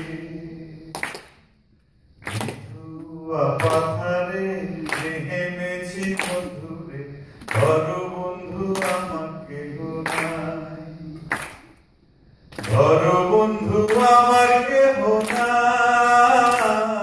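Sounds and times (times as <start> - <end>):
man singing unaccompanied: 2.6 - 11.3, 12.6 - 17.0.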